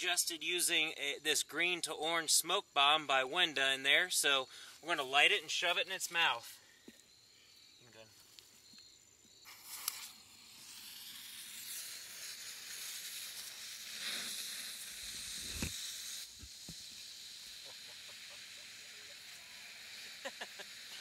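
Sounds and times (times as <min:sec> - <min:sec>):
smoke bomb hissing: 0:09.3 - 0:21.0.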